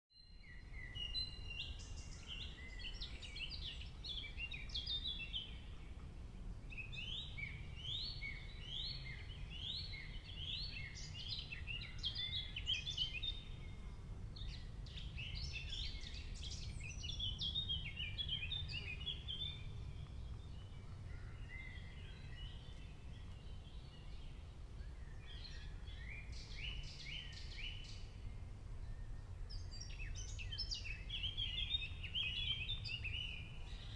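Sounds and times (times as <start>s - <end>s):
songbirds chirping and singing: 0.2s - 33.9s
low steady rumble: 1.2s - 27.0s.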